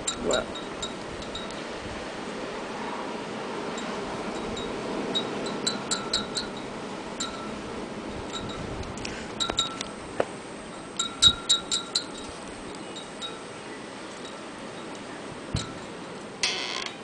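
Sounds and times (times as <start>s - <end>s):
blizzard wind rushing: 0.7s - 9.4s
wind chime ringing: 3.8s - 7.6s, 10.7s - 13.5s.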